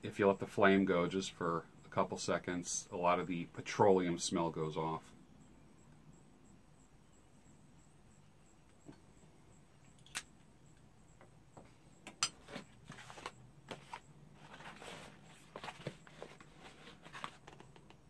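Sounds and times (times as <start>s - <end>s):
cardboard box being handled: 12.4s - 17.9s.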